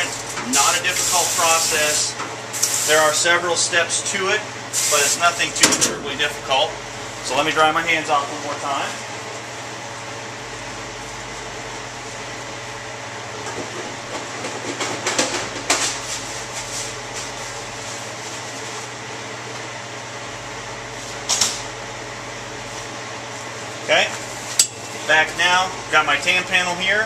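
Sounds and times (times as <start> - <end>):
air dryer blower running: 0.0 - 9.2.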